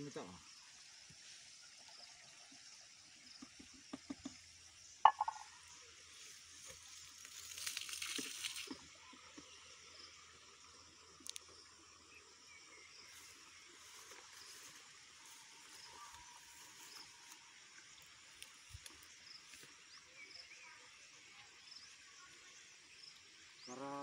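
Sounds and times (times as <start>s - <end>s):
insect hum: 0.0s - 24.0s
soft bird chirps: 0.1s - 24.0s.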